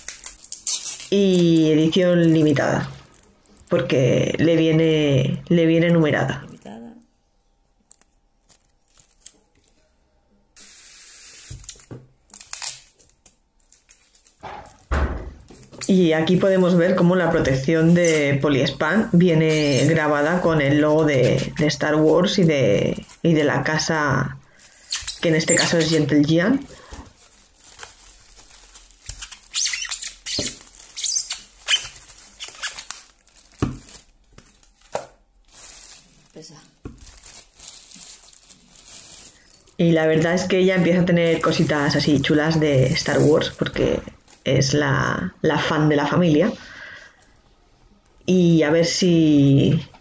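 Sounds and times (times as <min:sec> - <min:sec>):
plastic wrap rustling: 0:00.0 - 0:07.1, 0:07.7 - 0:45.2
steady hiss: 0:10.6 - 0:11.9
foam squeaking and scraping: 0:19.4 - 0:20.1, 0:24.7 - 0:26.1, 0:29.0 - 0:32.9.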